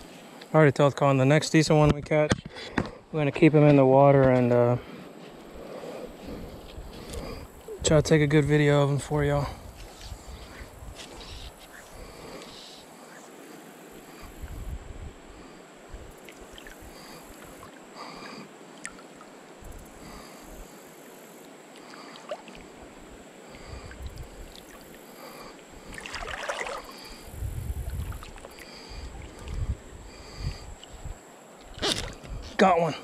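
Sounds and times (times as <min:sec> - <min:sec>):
water lapping against canoe: 0:15.3 - 0:32.5.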